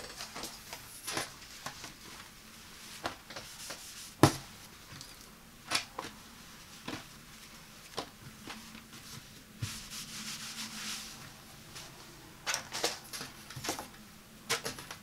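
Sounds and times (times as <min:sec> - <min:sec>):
hands rustling on rug pad: 0:06.0 - 0:12.2.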